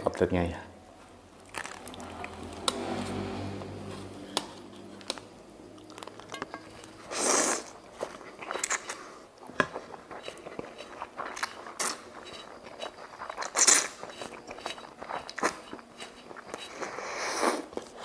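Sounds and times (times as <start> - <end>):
wet chewing: 1.4 - 3.0, 4.3 - 18.0
slurping noodles: 6.9 - 9.2, 10.1 - 18.0.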